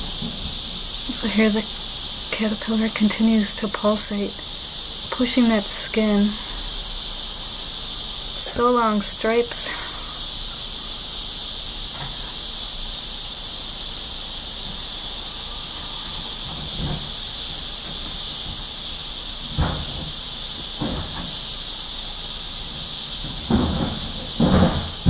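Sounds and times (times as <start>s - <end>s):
insect chorus buzzing: 0.0s - 25.0s
soft knocks: 23.2s - 25.0s.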